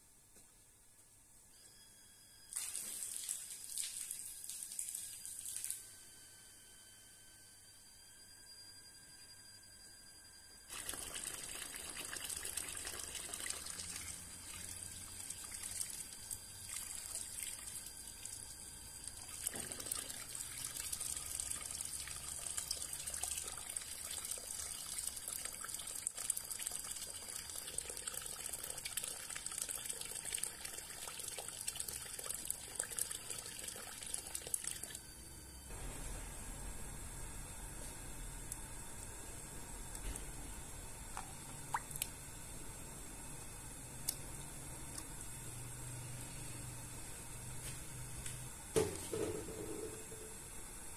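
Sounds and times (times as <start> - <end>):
water running and trickling: 2.6 - 5.8, 10.7 - 35.0.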